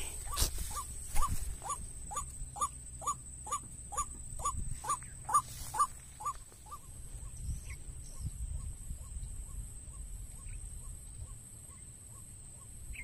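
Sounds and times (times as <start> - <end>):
waterhen calling: 0.0 - 6.9.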